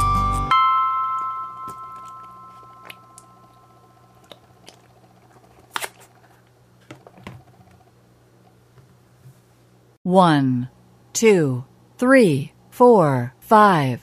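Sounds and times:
background music chord: 0.0 - 4.0
slime squishing: 1.9 - 6.4.

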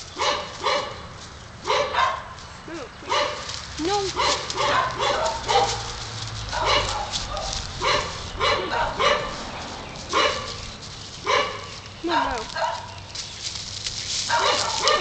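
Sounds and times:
dog barking: 0.2 - 2.4, 3.1 - 9.5, 10.1 - 11.8, 12.5 - 13.0, 14.3 - 15.0.

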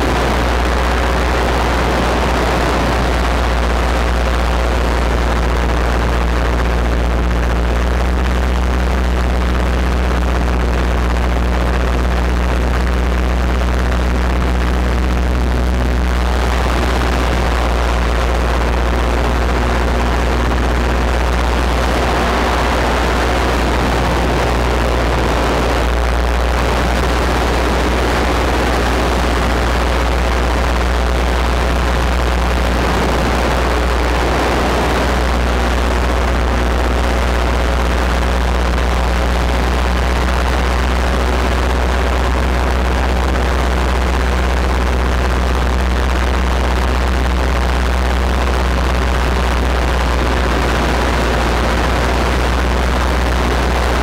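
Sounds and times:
wind rushing over microphone: 0.0 - 7.1, 13.5 - 42.7, 47.8 - 54.0
paramotor engine droning: 0.0 - 54.0.

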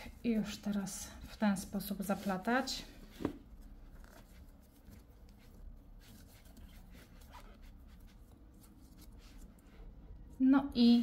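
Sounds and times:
low room hum: 0.0 - 11.0
cord rustling on crochet hook: 3.5 - 9.9.

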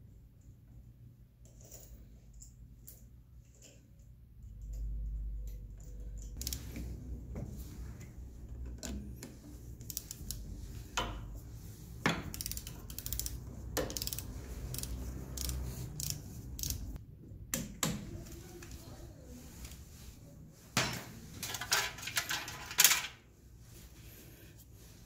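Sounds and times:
hand ratchet clicking: 6.2 - 6.8, 9.8 - 10.4, 12.3 - 17.0.

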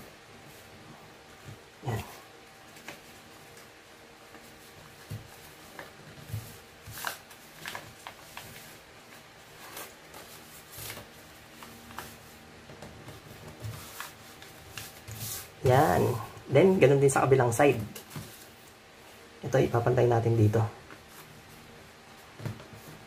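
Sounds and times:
paper being folded and creased: 2.6 - 15.6.

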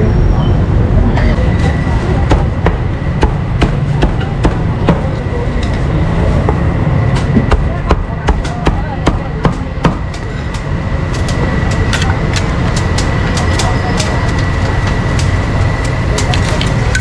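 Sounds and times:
utensils clicking and knocking: 8.4 - 17.0.

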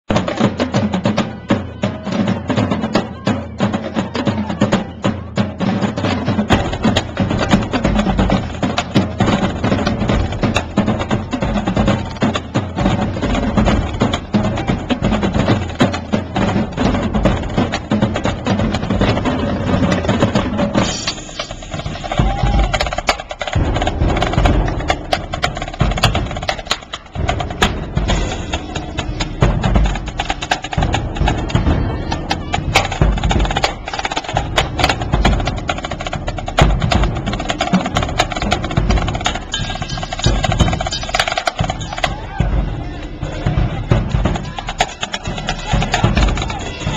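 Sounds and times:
marching drum line: 0.0 - 46.9
snare drum rolls: 0.1 - 46.9
deep bass drum hits: 23.6 - 26.6.

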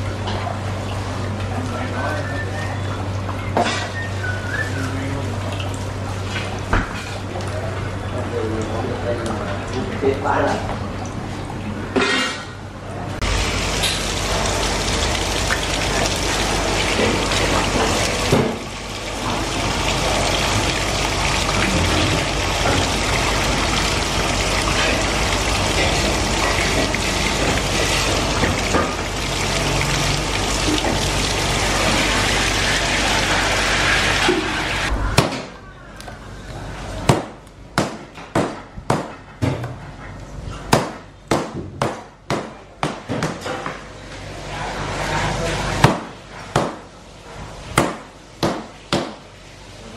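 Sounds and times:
tap water running: 13.2 - 34.9.

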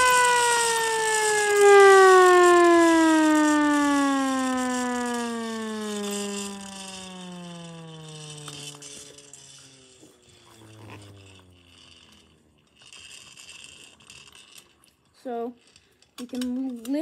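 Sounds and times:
siren mechanism clicks and knocks: 0.0 - 10.2
siren winding down: 0.0 - 12.8.

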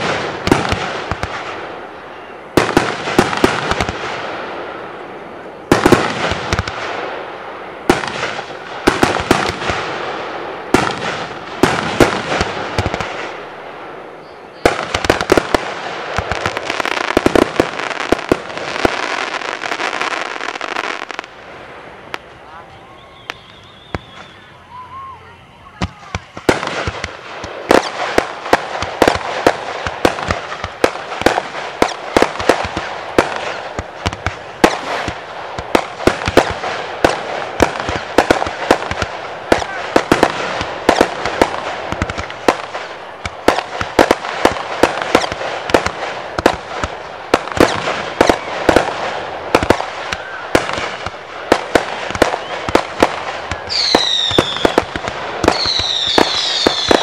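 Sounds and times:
fireworks bursting: 0.0 - 57.0
fireworks crackling: 0.0 - 57.0
falling firework whistles: 14.1 - 15.6, 22.1 - 38.8, 47.4 - 57.0.

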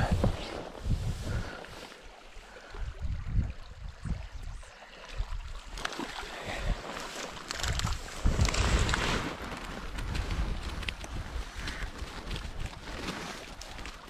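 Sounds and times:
wind buffeting microphone: 0.0 - 1.8, 2.6 - 4.6, 7.6 - 13.1
small river running: 0.0 - 14.0.

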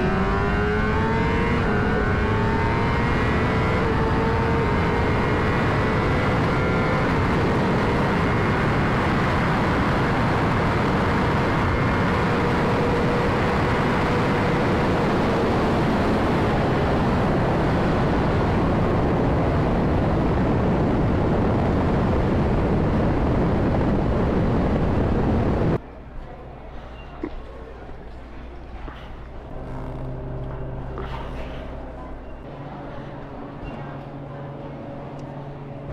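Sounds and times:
motorcycle engine: 0.0 - 18.4, 29.4 - 32.9
wind and road noise: 0.0 - 25.8.

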